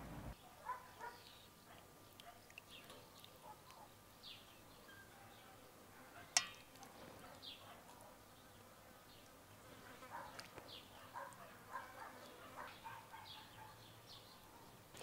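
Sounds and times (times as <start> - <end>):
faint bird chirps: 2.3 - 5.7.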